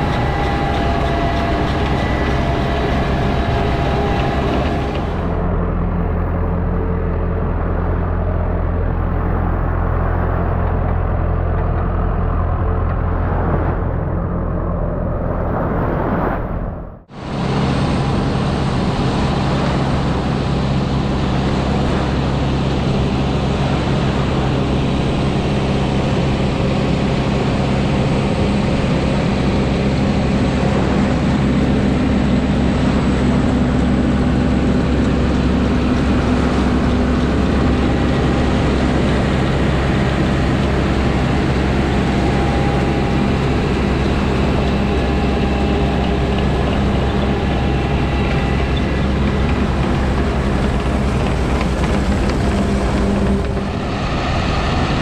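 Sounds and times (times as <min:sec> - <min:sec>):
sieve conveyor working through sand: 0:00.0 - 0:05.4, 0:29.7 - 0:55.0
tractor diesel engine running: 0:00.0 - 0:15.1, 0:17.1 - 0:55.0.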